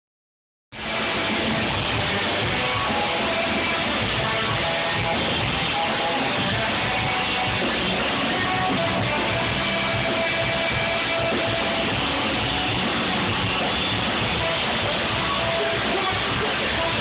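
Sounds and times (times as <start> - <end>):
ska band playing live: 0.8 - 17.0.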